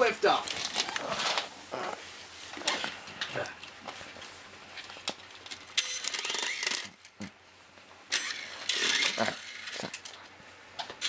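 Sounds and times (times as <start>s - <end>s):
toy helicopter rotors whirring: 5.7s - 7.0s, 8.1s - 10.2s.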